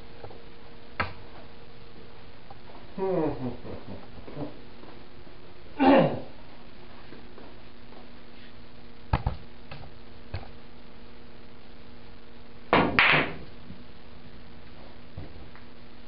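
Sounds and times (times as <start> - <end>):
cue striking cue ball: 12.8 - 13.4.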